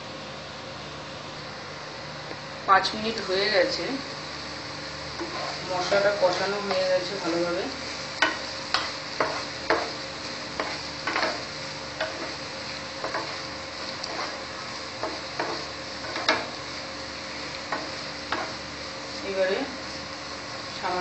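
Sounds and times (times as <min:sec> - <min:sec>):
low sizzle: 0:00.0 - 0:21.0
spatula scraping frying pan: 0:05.1 - 0:20.2.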